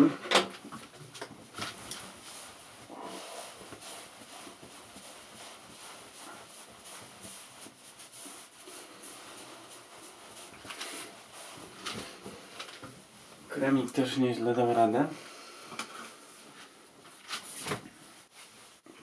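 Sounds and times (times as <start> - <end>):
towel scuffs: 1.3 - 13.6
towel rubbing on face: 1.3 - 14.8, 16.1 - 19.0.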